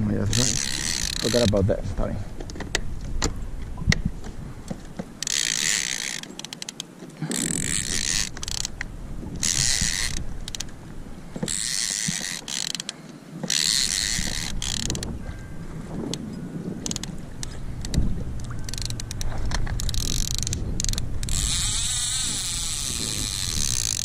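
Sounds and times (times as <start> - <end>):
fishing reel ratcheting: 0.2 - 1.6, 5.2 - 10.8, 11.4 - 15.2, 16.1 - 24.0.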